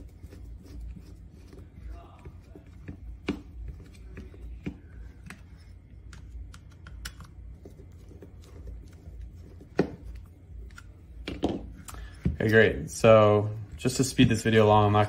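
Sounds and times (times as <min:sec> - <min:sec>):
screwdriver clicks and taps: 0:06.1 - 0:07.3.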